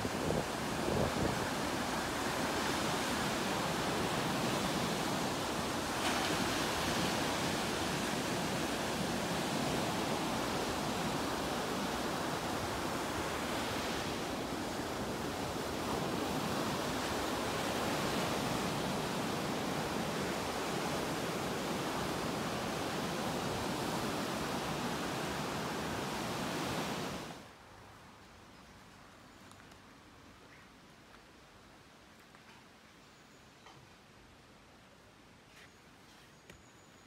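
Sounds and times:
surf breaking on beach: 0.0 - 27.4.

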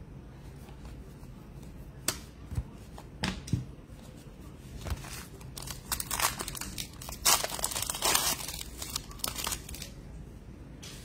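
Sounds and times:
wrapper crinkling: 5.0 - 10.0.

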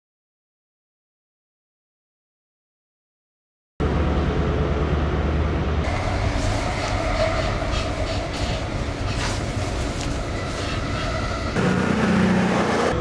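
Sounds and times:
train carriage running: 3.8 - 13.0
train low rumble: 3.8 - 13.0.

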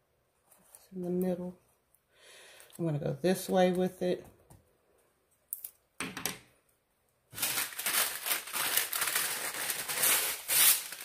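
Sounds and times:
sheet crinkling and crumpling: 7.4 - 11.0.

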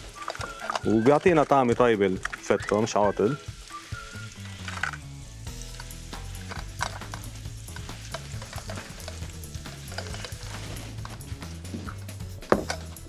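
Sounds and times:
background music with bass: 0.0 - 13.0
light sizzle: 0.0 - 13.0
wooden spoon scraping a pan: 6.4 - 12.0.

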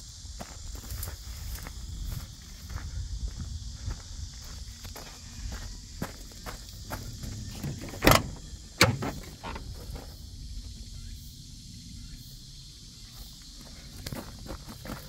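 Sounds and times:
truck door clunks: 7.0 - 10.1
handling knocks: 7.4 - 10.0.

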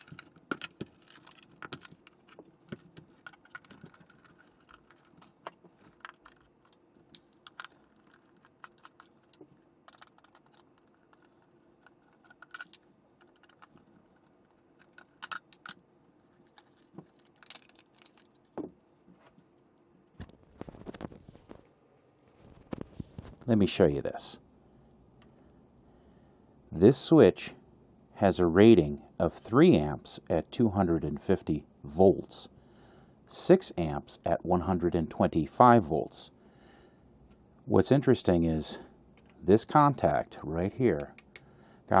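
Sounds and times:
plastic parts clicking and rattling: 0.0 - 18.6.

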